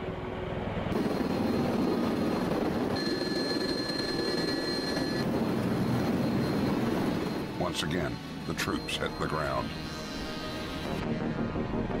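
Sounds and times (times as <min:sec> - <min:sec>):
aircraft engines and rotors running: 0:00.0 - 0:12.0
thin high whine: 0:02.9 - 0:11.3.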